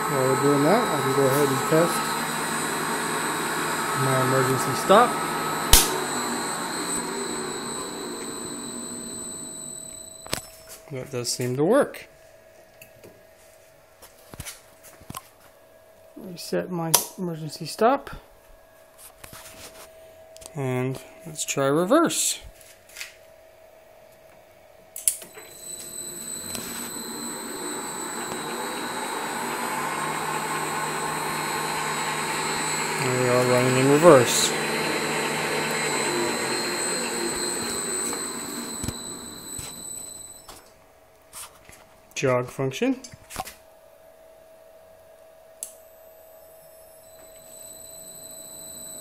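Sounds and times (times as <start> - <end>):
lathe motor running with whine: 0.0 - 10.4, 25.3 - 40.6, 47.0 - 49.0
switch click: 5.7 - 6.0.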